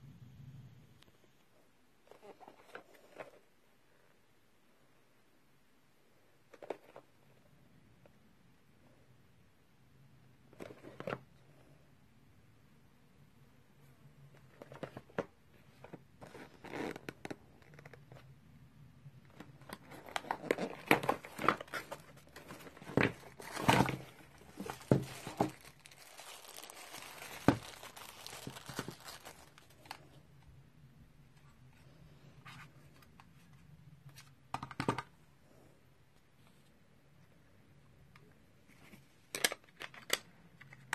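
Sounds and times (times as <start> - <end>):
plastic bags crinkling: 19.4 - 30.2.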